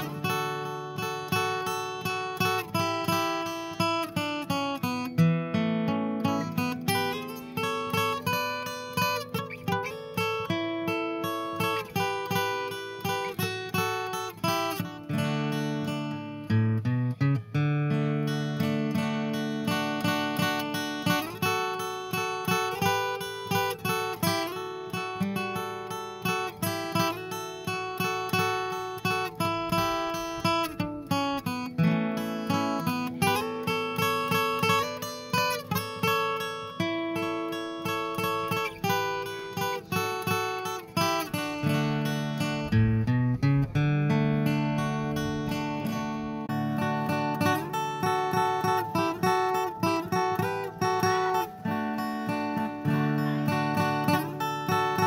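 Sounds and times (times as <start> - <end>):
acoustic guitar music: 0.0 - 55.0.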